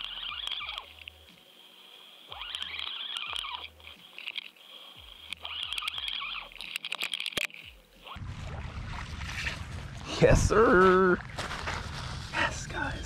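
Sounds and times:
water rushing and churning: 8.1s - 12.0s.

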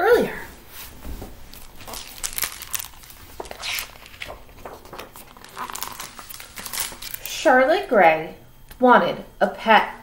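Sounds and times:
book pages rustling: 0.7s - 7.3s.

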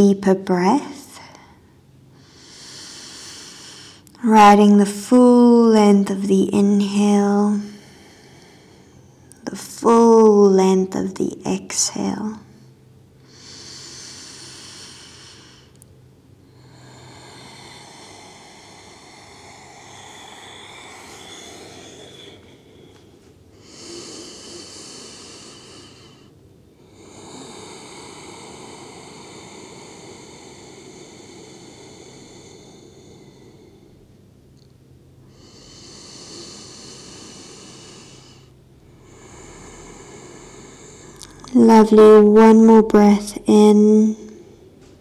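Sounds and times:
woman breathing slowly: 1.2s - 4.2s, 7.3s - 9.4s, 12.5s - 41.6s.

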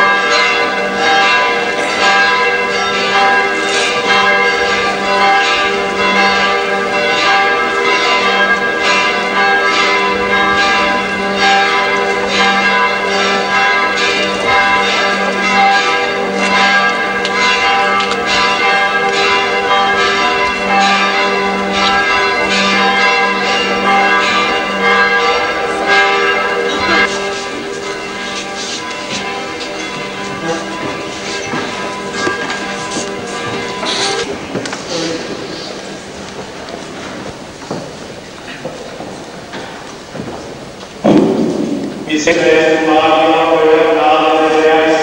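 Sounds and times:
church bells pealing: 0.0s - 45.0s.

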